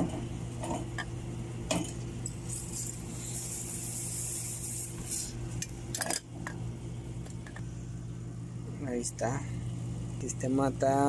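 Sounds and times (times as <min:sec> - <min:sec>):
aerosol spray hissing: 0:02.6 - 0:05.4.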